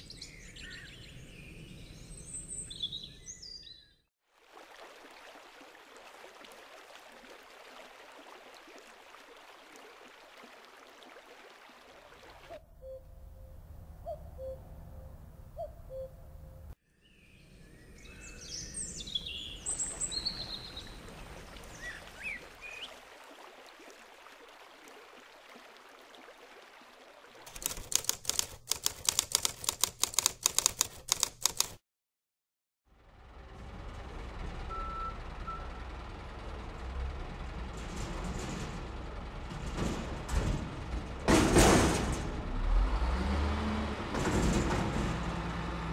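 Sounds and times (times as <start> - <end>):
small birds chirping: 0.0 - 4.0, 14.0 - 23.0
stream water running over stones: 4.3 - 12.6, 19.6 - 28.4
rapid loud clicking: 27.5 - 31.8.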